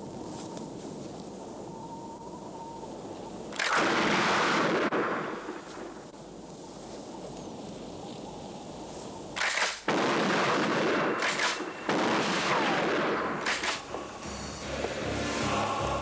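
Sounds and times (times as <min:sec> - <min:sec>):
blast-like bursts: 0:09.4 - 0:16.0
low hiss: 0:11.1 - 0:16.0
loud rush of noise: 0:11.6 - 0:16.0.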